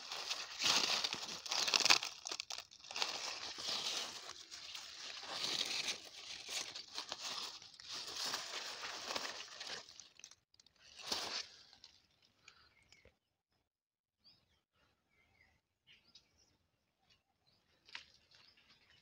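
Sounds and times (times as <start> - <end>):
leaves rustling and crinkling: 0.0 - 12.2.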